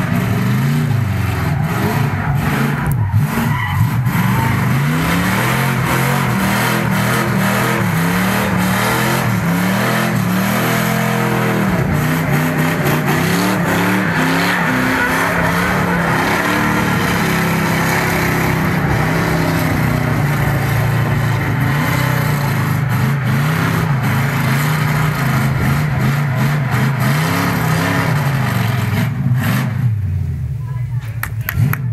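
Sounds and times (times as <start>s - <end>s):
tyres spinning and squealing: 0.0s - 29.8s
car engine revving hard: 0.0s - 30.0s.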